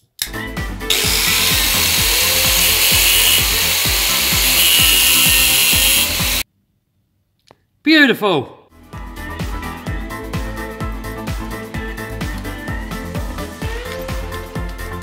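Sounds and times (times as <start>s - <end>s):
background music with steady beat: 0.2s - 6.4s, 8.7s - 15.0s
grinder hissing: 0.9s - 6.4s.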